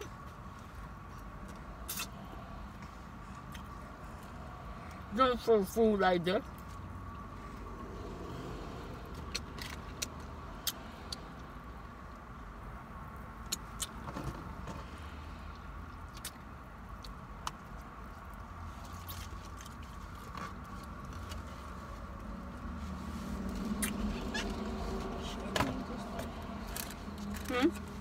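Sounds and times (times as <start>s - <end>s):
person chewing food: 1.1s - 2.2s.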